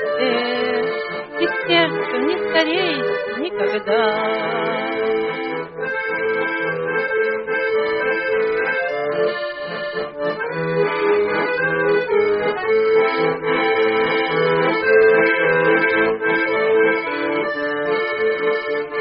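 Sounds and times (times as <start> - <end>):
button accordion melody: 0.0 - 19.0.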